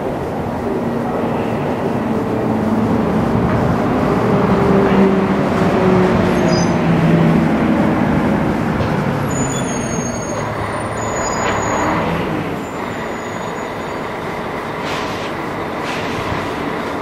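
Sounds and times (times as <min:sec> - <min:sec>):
low engine hum: 0:00.0 - 0:17.0
passing vehicles rushing: 0:00.0 - 0:17.0
brief hiss: 0:14.8 - 0:16.7.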